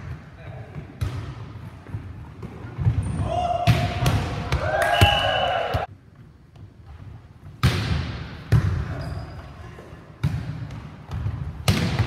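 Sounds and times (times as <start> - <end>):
volleyball smacks echoing: 3.6 - 5.9, 10.2 - 12.0.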